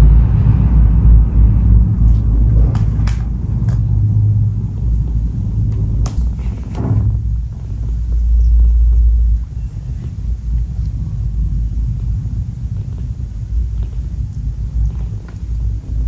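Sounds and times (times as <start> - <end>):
cat purring: 6.2 - 16.0.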